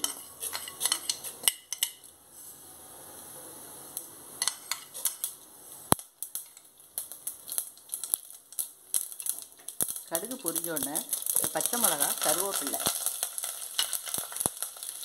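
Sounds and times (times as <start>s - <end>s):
steel spoon tapping a pot: 0.0s - 2.1s
seeds sizzling in hot oil: 0.0s - 15.0s.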